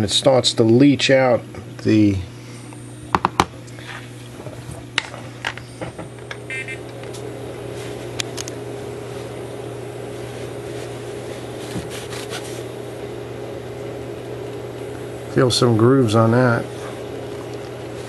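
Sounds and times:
steady low hum: 0.0 - 18.0
paper tissue rubbing and rustling: 10.2 - 12.7.

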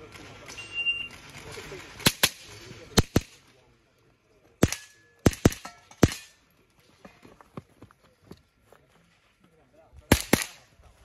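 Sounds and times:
rifle shots: 4.6 - 6.3, 10.1 - 10.6.

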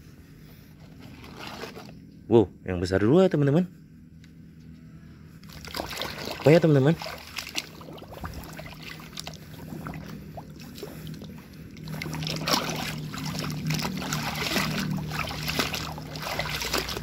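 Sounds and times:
steady low hum: 0.0 - 17.0
hand splashing in muddy water: 5.4 - 17.0.

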